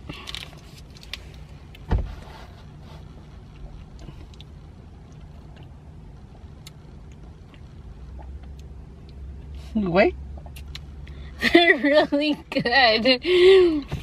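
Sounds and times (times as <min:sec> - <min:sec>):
car cabin low rumble: 0:00.0 - 0:14.0
dull thump: 0:01.8 - 0:02.2.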